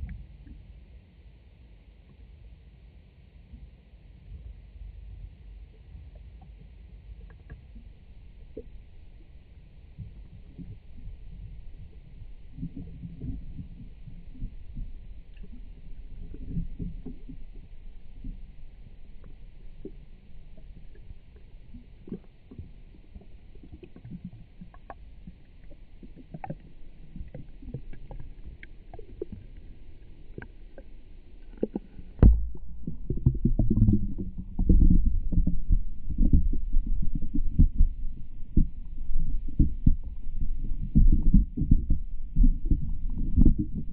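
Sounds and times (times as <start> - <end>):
muffled underwater rumbling: 4.4 - 43.9.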